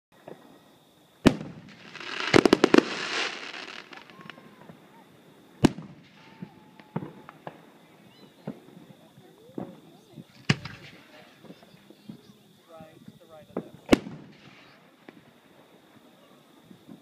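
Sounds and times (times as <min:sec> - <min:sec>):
small firework pops: 0:00.2 - 0:00.6, 0:01.2 - 0:04.8, 0:05.6 - 0:12.3, 0:13.5 - 0:15.3, 0:16.7 - 0:17.0
firework hissing burst with crackles: 0:00.3 - 0:17.0
firework bangs: 0:01.2 - 0:17.0.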